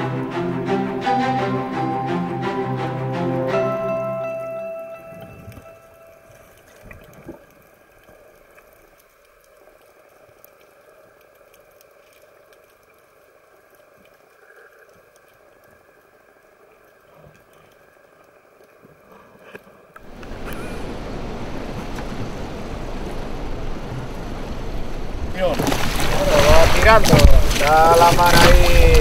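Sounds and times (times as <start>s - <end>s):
wind and sea noise: 3.6s - 9.1s, 9.8s - 29.0s
small underwater clicks and crackles: 5.2s - 20.6s, 25.5s - 29.0s
underwater hiss: 19.1s - 22.0s.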